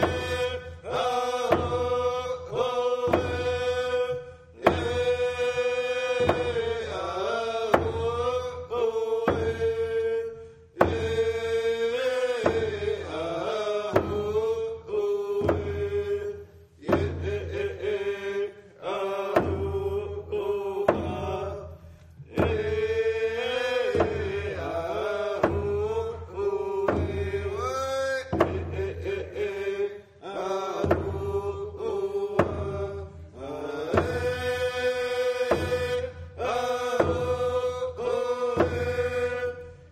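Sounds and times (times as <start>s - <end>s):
group of voices chanting: 0.0s - 10.0s, 28.2s - 39.9s.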